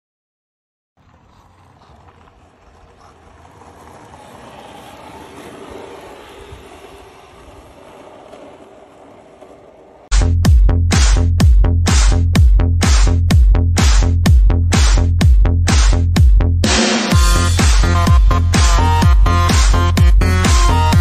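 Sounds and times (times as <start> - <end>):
wind rushing: 3.4 - 10.1
electronic dance music: 10.1 - 21.0.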